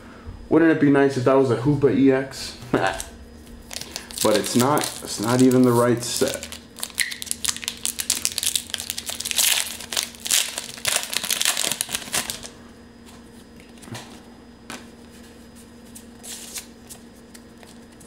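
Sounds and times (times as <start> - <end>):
cards rustling and clicking: 3.6 - 12.5
foil wrapper crinkling: 3.6 - 12.6.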